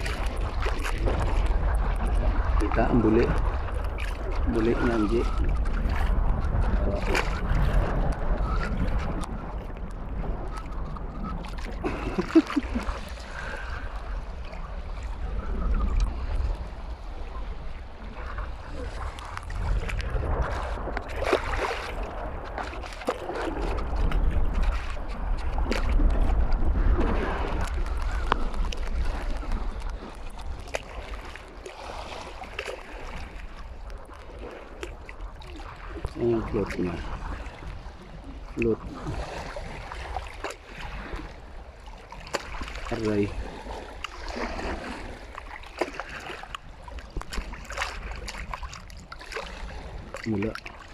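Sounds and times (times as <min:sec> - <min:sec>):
small clicks and splashes: 0:00.0 - 0:13.2, 0:19.1 - 0:26.6, 0:27.6 - 0:37.0, 0:41.9 - 0:43.4, 0:44.0 - 0:50.9
water sloshing around wading legs: 0:00.0 - 0:50.9
wind buffeting microphone: 0:00.0 - 0:50.9.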